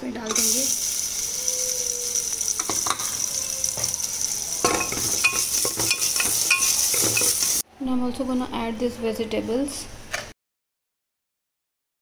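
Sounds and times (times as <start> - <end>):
grains sizzling in hot oil: 0.3 - 7.6
spatula scraping cooker: 4.6 - 7.6.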